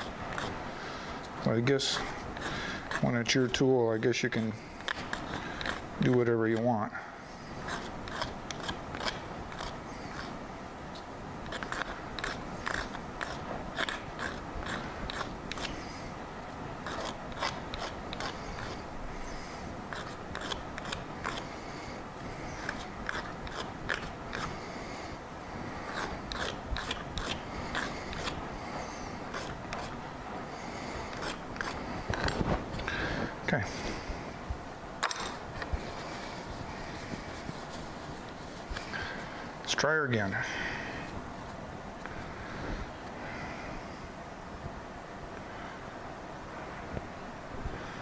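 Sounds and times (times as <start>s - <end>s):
hand tool clicking and scraping plastic: 4.3s - 6.7s, 7.6s - 10.3s, 11.4s - 15.8s, 16.8s - 18.8s, 19.9s - 21.5s, 22.5s - 24.6s, 25.9s - 28.4s, 31.1s - 32.9s.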